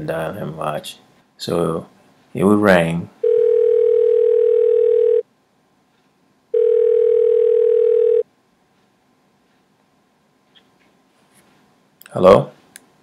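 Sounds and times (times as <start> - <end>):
phone ringback tone: 3.2 - 5.2, 6.5 - 8.2.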